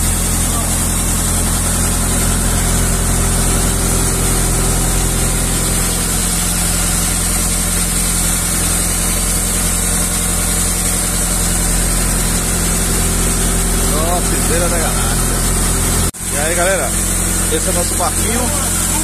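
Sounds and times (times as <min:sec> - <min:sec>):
boat engine drone: 0:00.0 - 0:19.0.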